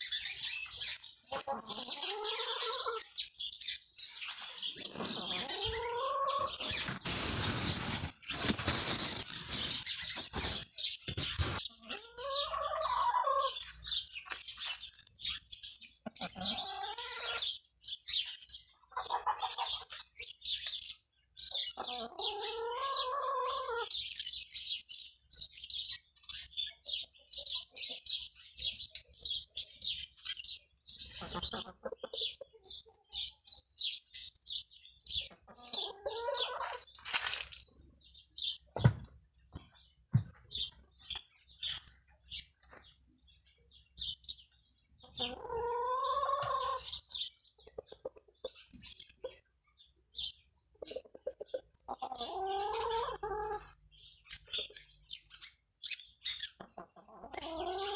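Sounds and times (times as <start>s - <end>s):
small birds chirping: 0.0s - 57.9s
domestic fowl calling: 5.0s - 6.8s
loud rustle: 6.9s - 10.7s.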